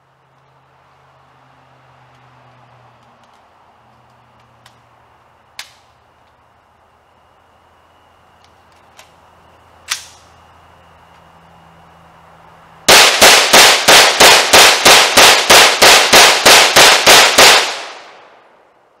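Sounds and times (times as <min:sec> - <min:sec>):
sharp click: 0:09.8 - 0:10.3
rapid gunshots: 0:12.9 - 0:18.3.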